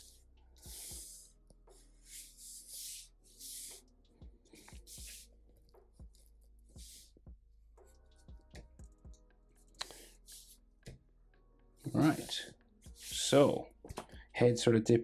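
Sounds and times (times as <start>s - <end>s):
marker pen scratching on paper: 0.0s - 3.9s, 4.6s - 5.3s, 6.0s - 7.2s, 9.8s - 10.6s, 11.9s - 13.5s
faint background music: 0.0s - 15.0s.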